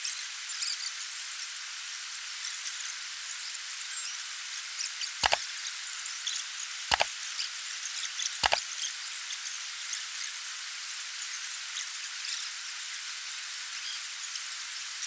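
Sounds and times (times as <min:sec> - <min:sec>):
double mouse-click sound effects: 0:08.4 - 0:08.6.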